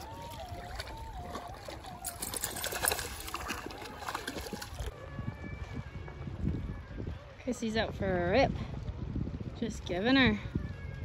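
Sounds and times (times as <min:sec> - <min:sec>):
water trickling and splashing: 0:00.0 - 0:11.0.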